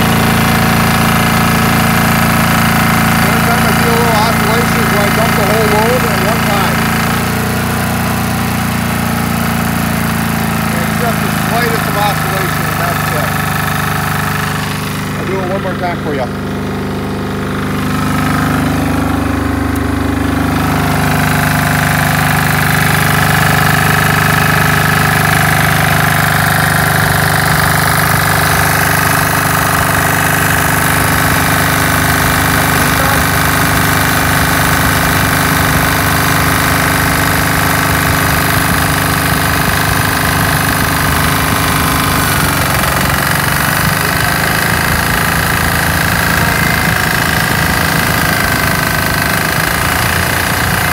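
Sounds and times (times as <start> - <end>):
diesel generator running: 0.0 - 50.9
electric fan whine: 0.0 - 50.9.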